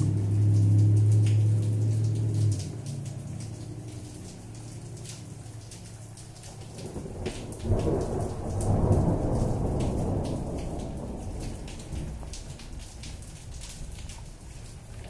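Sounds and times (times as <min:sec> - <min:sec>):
raindrops striking close by: 0:00.0 - 0:15.0
steady rain: 0:00.0 - 0:15.0
rolling peal of thunder: 0:06.5 - 0:14.1.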